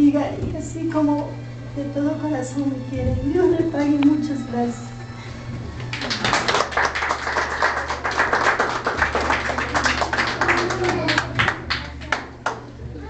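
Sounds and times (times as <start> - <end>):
small group clapping: 5.8 - 12.8.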